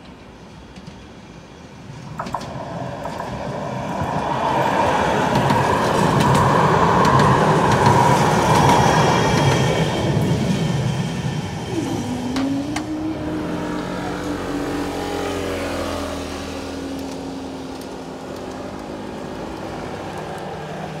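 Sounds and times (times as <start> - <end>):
barrier motor hum: 10.0 - 21.0.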